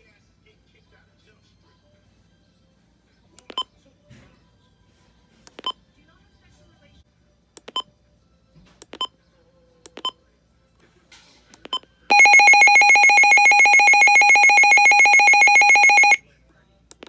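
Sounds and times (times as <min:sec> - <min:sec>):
pulsing electronic alarm: 0:12.1 - 0:16.2.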